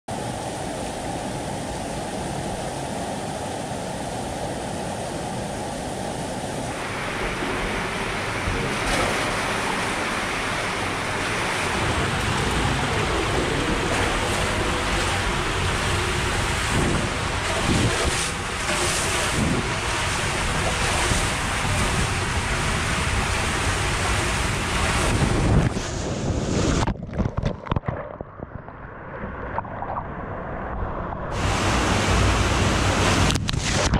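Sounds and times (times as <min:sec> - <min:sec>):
steady rushing noise: 0:00.1 - 0:33.9
water rushing down tube slide: 0:06.6 - 0:33.9
loud splash into pool: 0:06.8 - 0:25.6.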